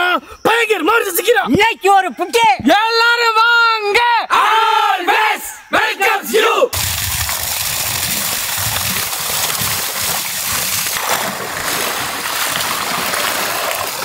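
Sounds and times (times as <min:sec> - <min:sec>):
water gushing into metal wok: 0:06.8 - 0:14.0.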